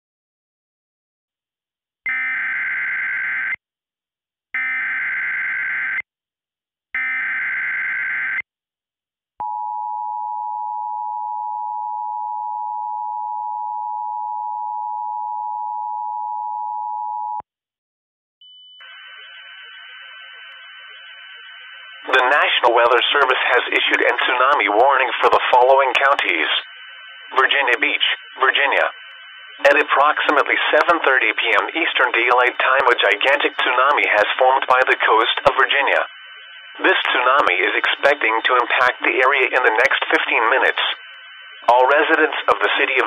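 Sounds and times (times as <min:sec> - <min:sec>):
two-tone alert signal: 0:22.1 - 0:23.3.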